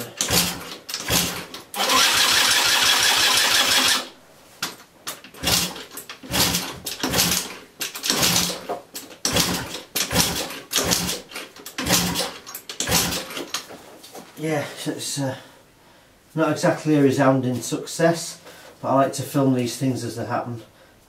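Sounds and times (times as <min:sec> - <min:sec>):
moped starter cranking: 0:00.0 - 0:04.1, 0:05.3 - 0:13.6.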